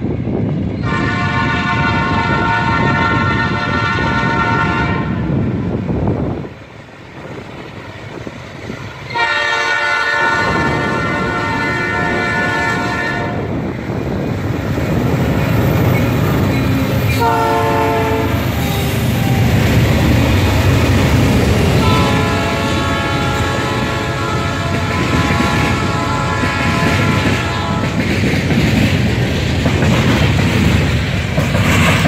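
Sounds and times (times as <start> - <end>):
diesel locomotives rumbling: 0.0 - 32.0
train horn: 0.8 - 5.4, 9.1 - 13.6, 16.2 - 19.6, 21.6 - 28.2
train wheels clattering on rails: 6.8 - 32.0.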